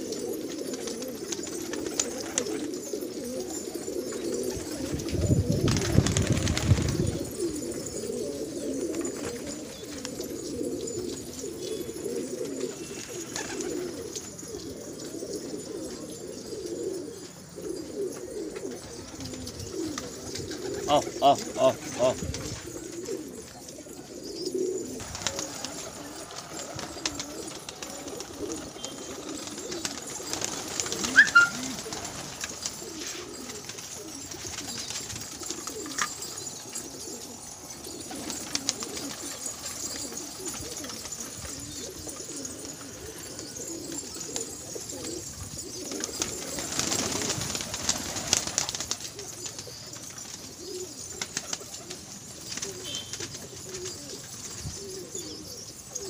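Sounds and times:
pigeons cooing: 0:00.0 - 0:56.0
wings flapping: 0:00.4 - 0:02.7, 0:04.6 - 0:07.2, 0:13.0 - 0:14.3, 0:25.0 - 0:42.8, 0:45.9 - 0:53.9.

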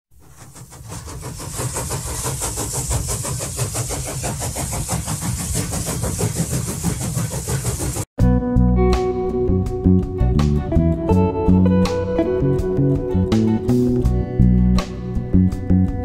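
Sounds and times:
moving train rhythm and rumble: 0:00.2 - 0:08.2.

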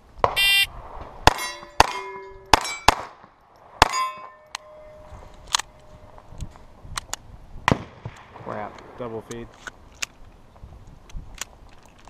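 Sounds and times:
pistol shots: 0:01.2 - 0:04.1
steel plates ringing: 0:01.3 - 0:03.0, 0:03.8 - 0:06.0.

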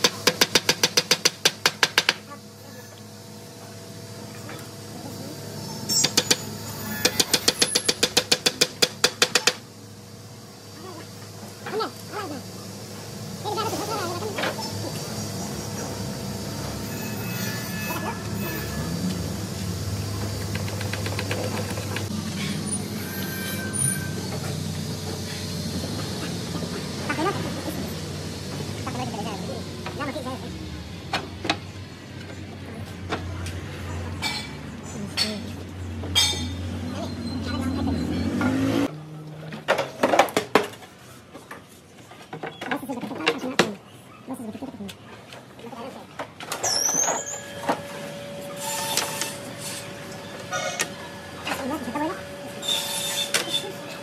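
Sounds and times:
workshop machinery hum: 0:00.0 - 0:54.0
brief squeak: 0:46.6 - 0:47.6.

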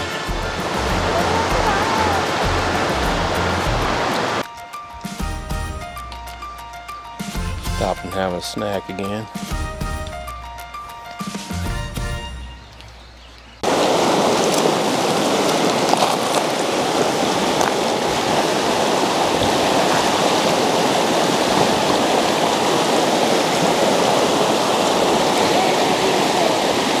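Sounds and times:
creek rushing over rocks: 0:00.0 - 0:04.8, 0:13.6 - 0:27.0.

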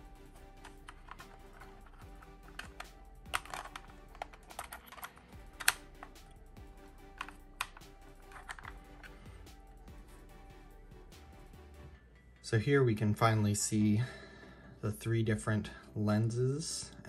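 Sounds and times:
soft background music: 0:00.0 - 0:17.0
plastic film canister clicks: 0:00.6 - 0:06.2.

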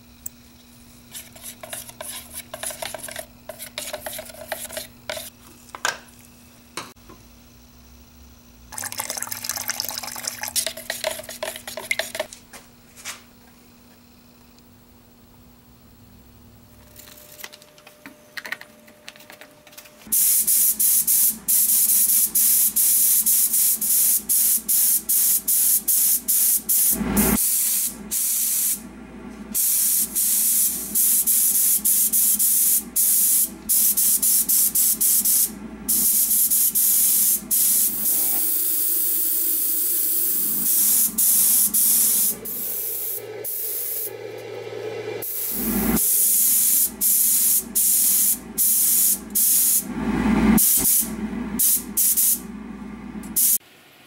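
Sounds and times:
spray gun hissing in bursts: 0:20.1 - 0:28.8, 0:29.5 - 0:44.2, 0:45.2 - 0:49.8, 0:50.6 - 0:52.4, 0:53.4 - 0:53.6.

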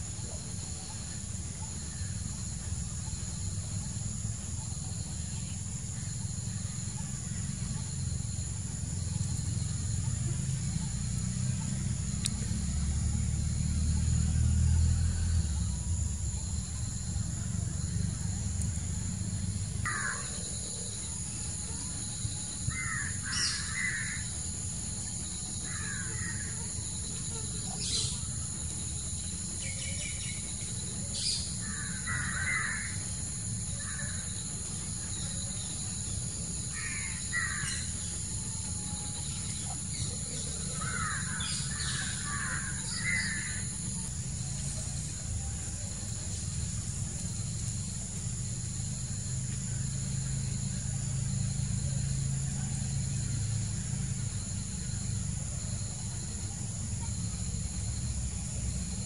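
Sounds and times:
harsh bird calls: 0:22.5 - 0:24.4, 0:29.5 - 0:43.9.

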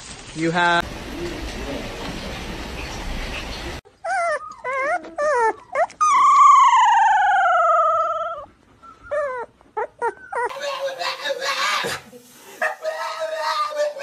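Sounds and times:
dog yowling and howling: 0:04.1 - 0:14.0.

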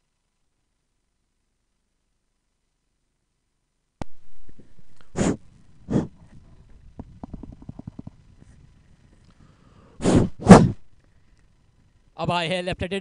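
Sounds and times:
faint crackling rumble: 0:04.0 - 0:12.3
puffs of air on microphone: 0:04.4 - 0:06.4, 0:09.9 - 0:10.8.

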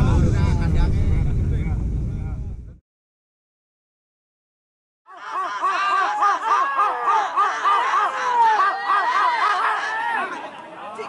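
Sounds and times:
crowd shouting repeated calls: 0:05.1 - 0:11.0.

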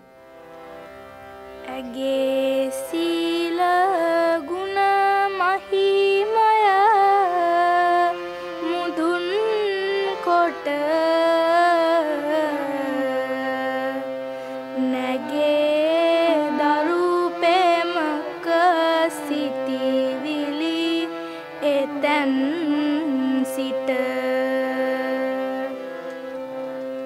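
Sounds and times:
sustained accompaniment: 0:00.0 - 0:27.0
person singing devotional song: 0:01.5 - 0:27.0.

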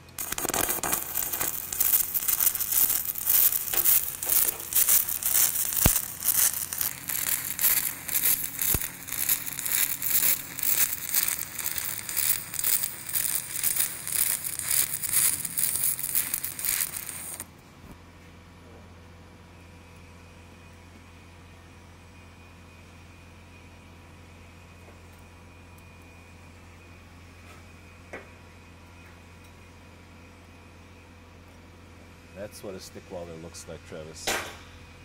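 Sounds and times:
welding arc crackling: 0:00.0 - 0:17.5.

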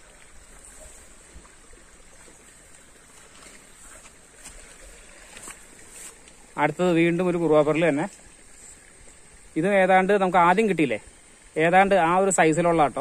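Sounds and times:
low even hiss: 0:00.0 - 0:13.0
faint ticks: 0:05.3 - 0:06.4.

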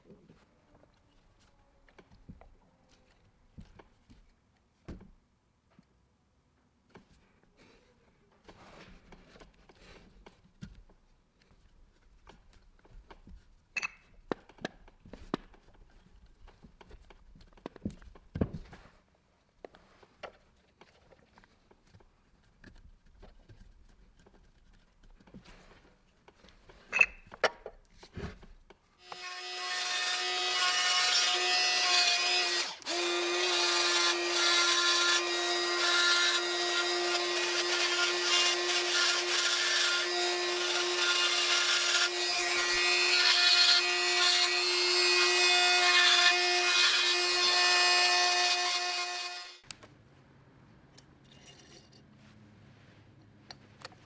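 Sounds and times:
rotary tool grinding metal: 0:29.0 - 0:49.6.

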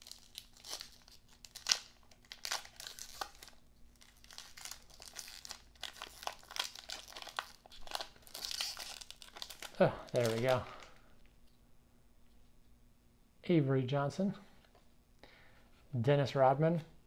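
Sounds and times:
plastic wrapper tearing and crinkling: 0:00.0 - 0:11.0.

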